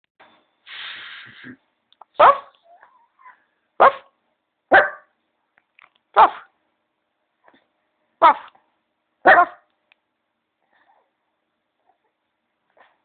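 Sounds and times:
dog barking: 2.2 - 2.8, 3.8 - 5.1, 6.2 - 6.5, 8.2 - 8.5, 9.2 - 9.7.

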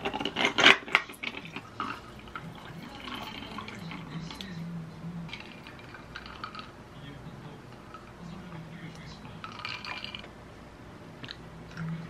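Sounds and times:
tea trickling over ice: 1.5 - 4.4.

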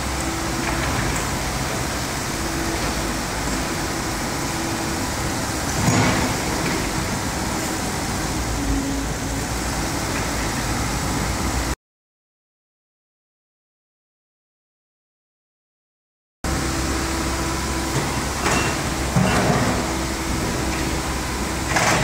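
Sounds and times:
mini excavator running: 0.0 - 11.8, 16.5 - 22.0.

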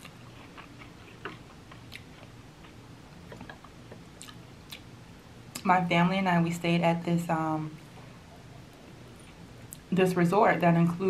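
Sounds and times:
soft chewing: 0.0 - 4.9, 8.6 - 9.9.

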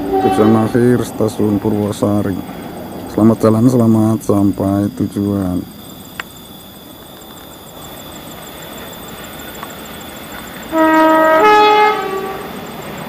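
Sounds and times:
locomotive horn blast: 0.0 - 1.9, 10.7 - 12.6.

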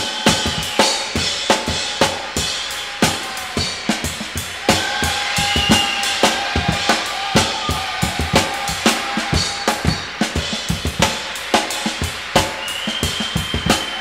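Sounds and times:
rock band playing: 0.0 - 14.0
kick and snare drum hits: 4.7 - 11.2.

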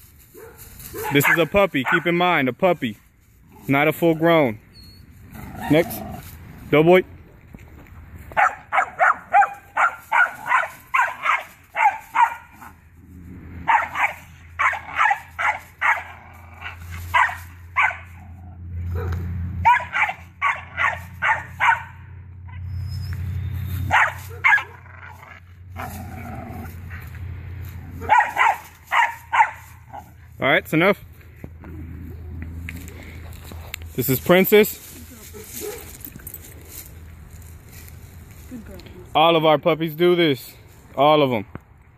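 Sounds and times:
puppy barking high yaps: 0.4 - 2.1, 8.4 - 12.7, 13.6 - 16.2, 17.1 - 18.2, 18.9 - 22.6, 23.9 - 24.8, 28.0 - 30.0, 35.4 - 35.9.

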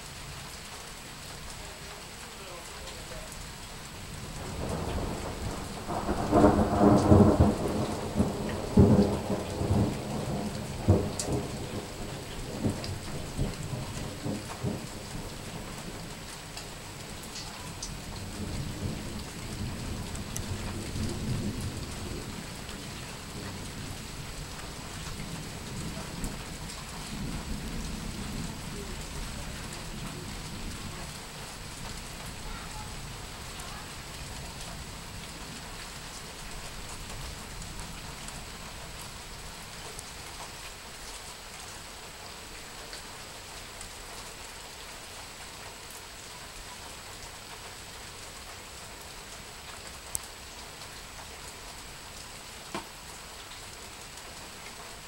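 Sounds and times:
steady rain: 0.0 - 55.0
thunder rumbling and cracking: 4.2 - 16.1, 17.9 - 38.6.

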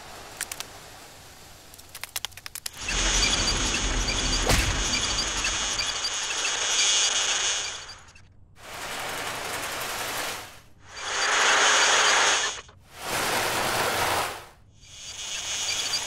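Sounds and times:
faint high motor whine: 2.7 - 12.8, 14.7 - 16.0.

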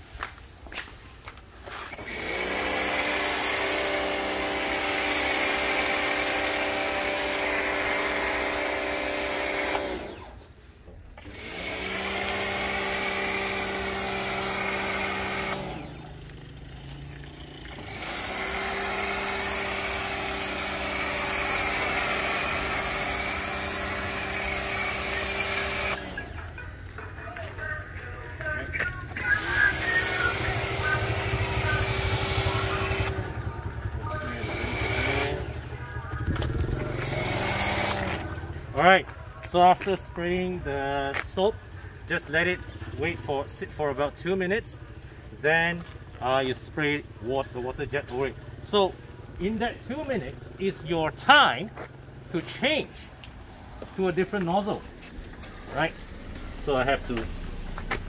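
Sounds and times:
pressure washer pump hum: 1.5 - 26.9, 28.7 - 38.7, 48.0 - 58.0.

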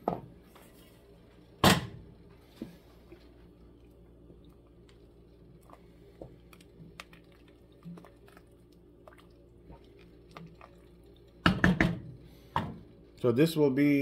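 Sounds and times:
soup boiling and bubbling: 2.1 - 13.1.

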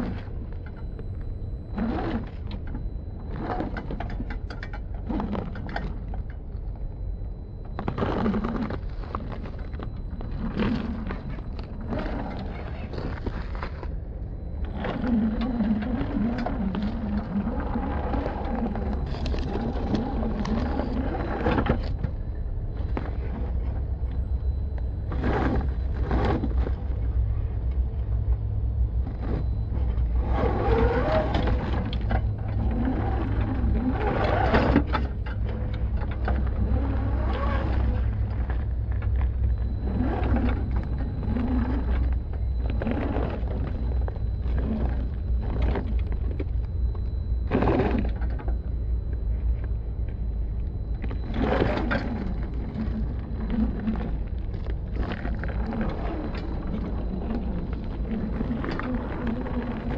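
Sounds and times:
steady low rumble: 0.0 - 59.9
tyres crunching through dirt: 7.7 - 24.1, 29.0 - 48.6, 49.4 - 59.9.

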